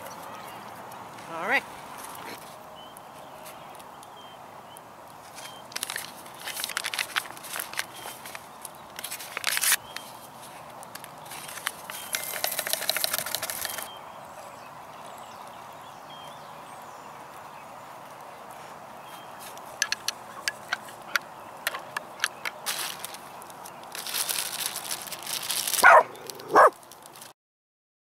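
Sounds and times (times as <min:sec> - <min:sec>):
packet crinkling and rustling: 0:05.2 - 0:13.9, 0:21.7 - 0:27.3.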